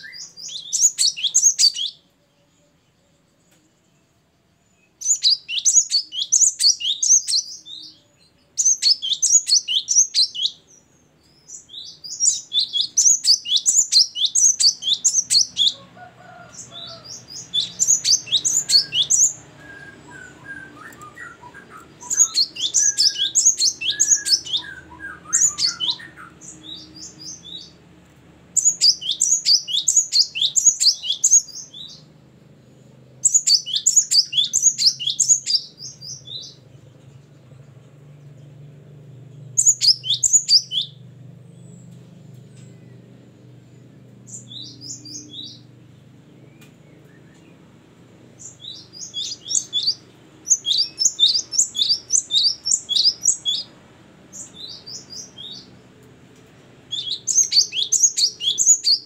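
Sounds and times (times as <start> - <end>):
bird singing rapid high chirps: 0.0 - 2.0, 4.8 - 15.8, 16.5 - 27.8, 28.5 - 42.0, 42.7 - 45.7, 46.3 - 55.8, 56.8 - 59.0.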